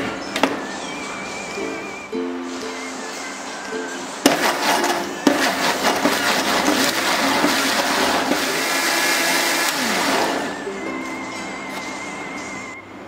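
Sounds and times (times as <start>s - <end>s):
mixer grinder running: 4.2s - 12.7s.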